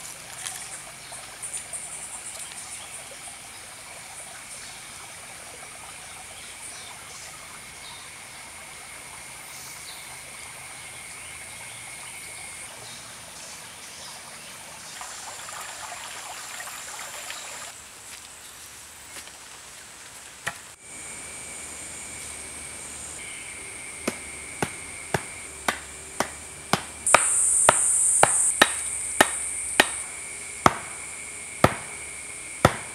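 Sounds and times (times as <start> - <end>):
creek trickling over stones: 0.0 - 9.3, 14.1 - 20.8
sharp knock: 24.0 - 30.1, 30.7 - 31.0, 31.6 - 32.0, 32.6 - 32.9.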